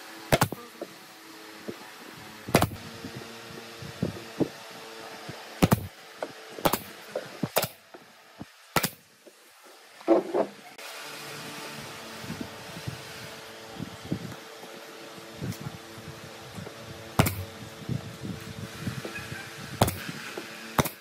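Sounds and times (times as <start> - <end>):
low steady hum: 0.0 - 21.0
brad nailer firing: 0.3 - 0.6, 2.5 - 2.8, 5.6 - 5.9, 6.6 - 7.8, 8.7 - 9.0, 17.1 - 17.5, 19.8 - 21.0.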